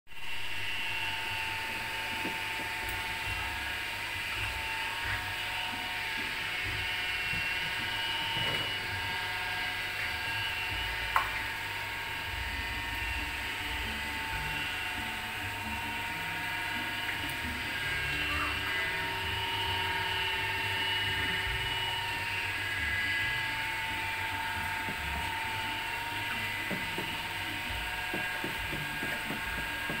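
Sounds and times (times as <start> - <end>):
small motor whining: 0.2 - 30.0.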